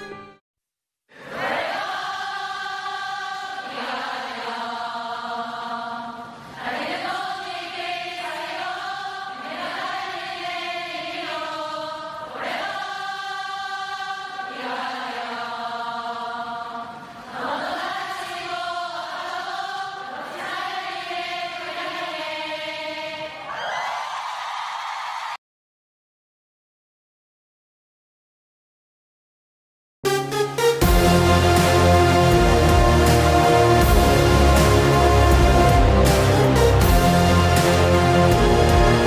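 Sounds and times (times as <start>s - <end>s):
choir singing held notes: 1.1s - 23.9s, 30.6s - 39.0s.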